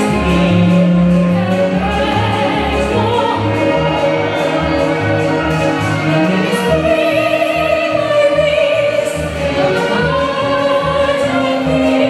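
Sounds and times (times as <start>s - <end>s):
woman singing with vibrato: 0.0s - 4.8s, 6.1s - 12.0s
musical accompaniment with low beat: 0.0s - 8.1s.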